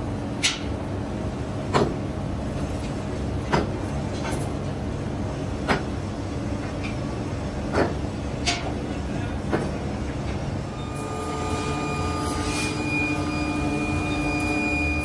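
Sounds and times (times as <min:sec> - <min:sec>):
foundry furnace roaring: 0:00.0 - 0:15.0
steady whine: 0:10.2 - 0:15.0.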